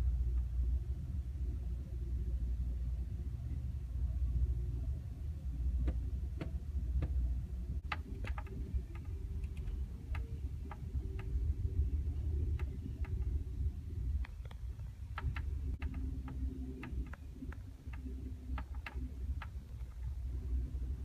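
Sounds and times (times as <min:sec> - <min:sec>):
light clicks and ticks: 0:07.8 - 0:11.5, 0:14.2 - 0:20.2.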